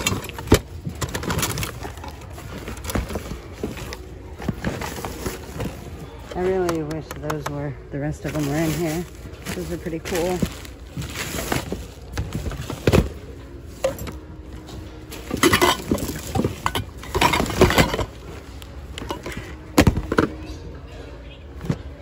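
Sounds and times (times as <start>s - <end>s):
plastic bags rustling: 0.0s - 6.7s, 8.0s - 20.3s
hard objects knocking together: 15.1s - 20.4s.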